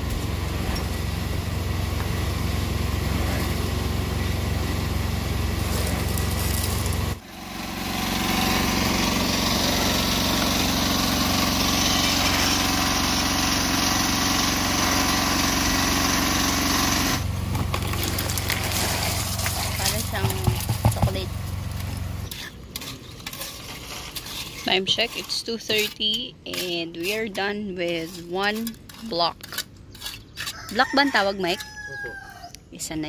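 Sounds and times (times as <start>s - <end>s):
small engine humming: 0.0s - 22.6s.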